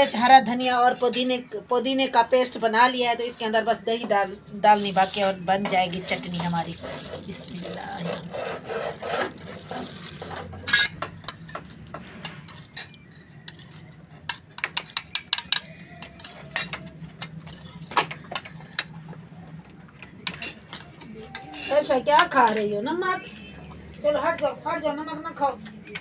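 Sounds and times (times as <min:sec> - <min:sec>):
plastic bag crinkling: 0:04.6 - 0:10.8
spoon clinking and scraping bowl: 0:12.4 - 0:18.9.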